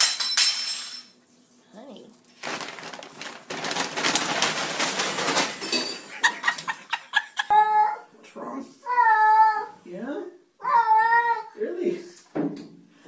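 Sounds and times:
paper bag crinkling: 2.2s - 6.7s.

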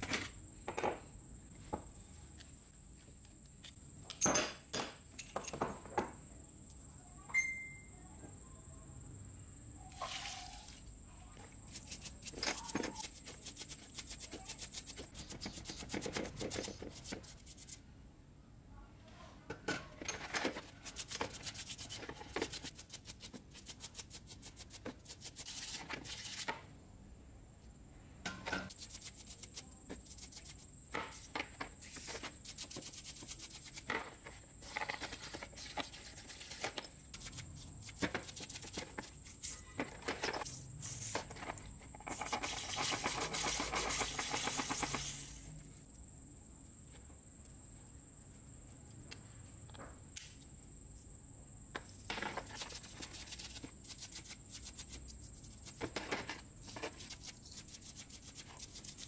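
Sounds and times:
paintbrush scrubbing metal parts: 11.6s - 17.8s, 20.0s - 26.6s, 28.6s - 45.5s, 52.3s - 59.0s.

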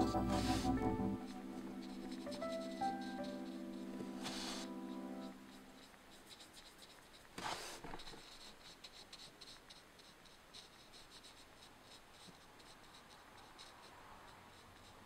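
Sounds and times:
pencil scratching on paper: 0.0s - 15.0s
paper rustle: 5.8s - 8.5s.

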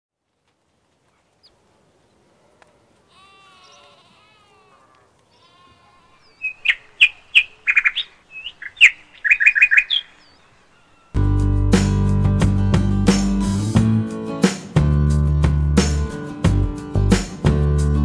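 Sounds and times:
faint wavering bleat: 3.0s - 7.1s, 10.6s - 11.2s
bird chirping sharply: 6.2s - 11.2s.

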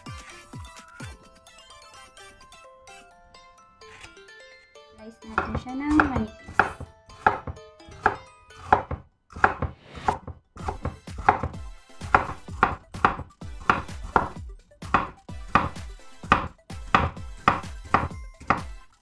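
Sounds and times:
knife knocking on cutting board: 5.3s - 14.3s, 14.9s - 18.7s.

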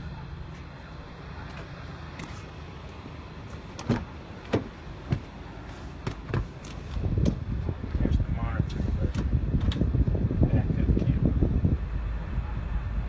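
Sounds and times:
person climbing into van cab: 3.5s - 5.4s, 6.0s - 7.5s
van door knocks and clicks: 3.8s - 5.3s, 6.0s - 7.4s
low rumble: 6.9s - 13.0s.

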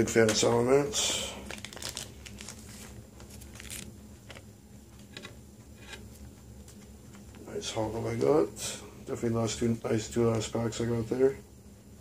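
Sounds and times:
low steady hum: 0.0s - 12.0s
trading cards and sleeves rustling: 1.3s - 4.4s.

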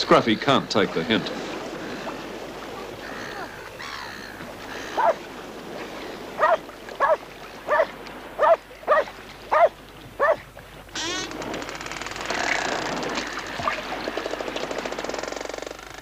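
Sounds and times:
dog barking: 5.0s - 5.2s, 6.4s - 10.4s.

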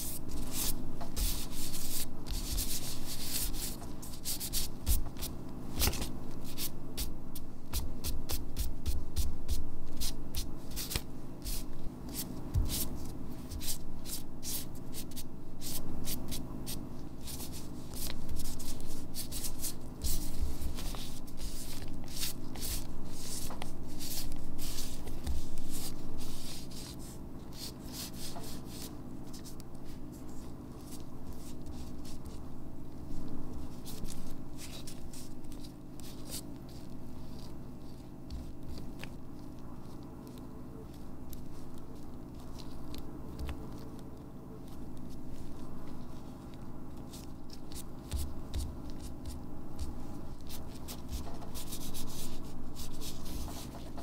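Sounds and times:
gloved fingers rubbing wet paint: 0.0s - 7.1s, 7.7s - 29.6s
steady low hum: 0.0s - 54.0s.

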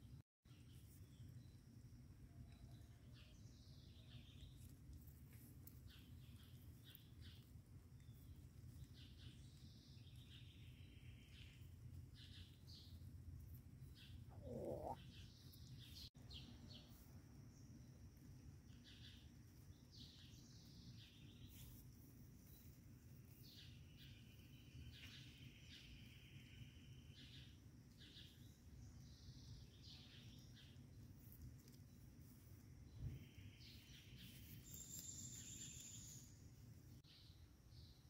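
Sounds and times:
low steady hum: 0.0s - 38.0s
birds chirping: 5.7s - 17.0s.

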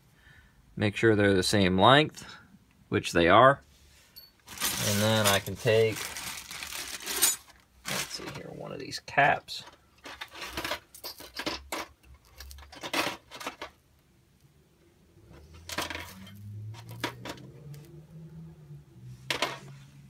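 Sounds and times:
metal hardware clinking: 10.0s - 13.7s.

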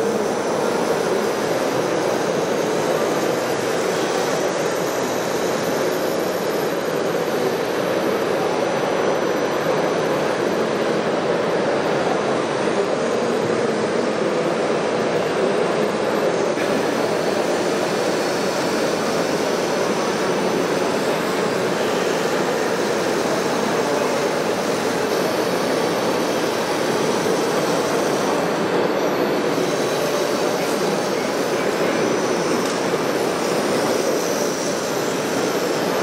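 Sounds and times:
model trucks whirring motors: 0.0s - 36.0s.

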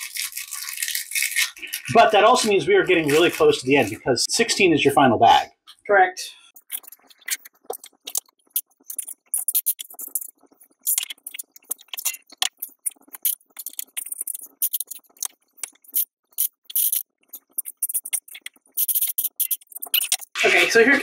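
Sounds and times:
plastic pieces clicking and rattling: 6.6s - 20.8s.

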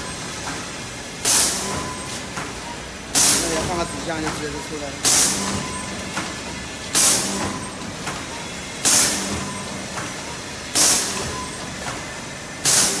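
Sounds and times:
machine mechanical hum: 0.0s - 13.0s
short hiss of air: 10.8s - 11.2s, 12.6s - 13.0s.

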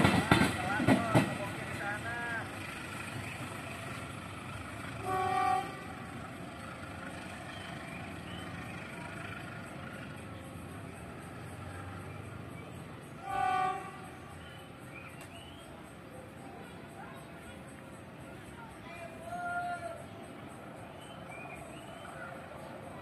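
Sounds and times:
train moving away: 0.0s - 23.0s
distant train horn blasts: 4.9s - 6.3s, 13.2s - 14.4s.

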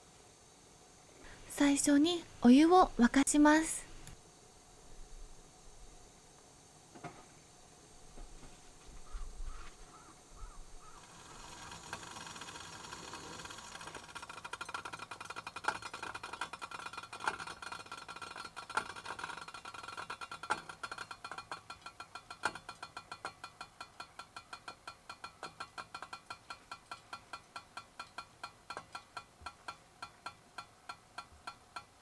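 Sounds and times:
metal kettle ticking: 13.7s - 32.0s.

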